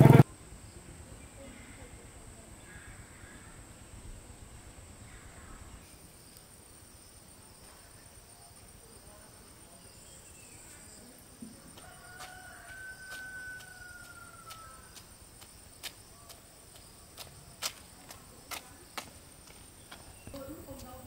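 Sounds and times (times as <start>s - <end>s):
rooster crowing: 11.7s - 15.0s.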